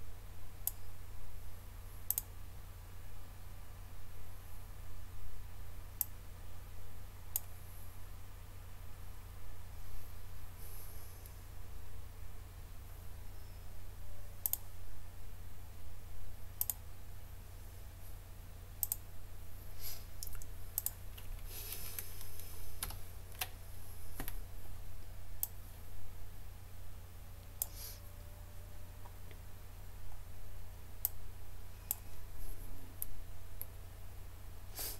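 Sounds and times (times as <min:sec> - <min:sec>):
steady low hum: 0:00.0 - 0:34.9
computer mouse clicks: 0:02.1 - 0:02.3, 0:07.3 - 0:07.5, 0:14.4 - 0:14.7, 0:16.6 - 0:16.8, 0:18.8 - 0:19.0, 0:20.2 - 0:23.6.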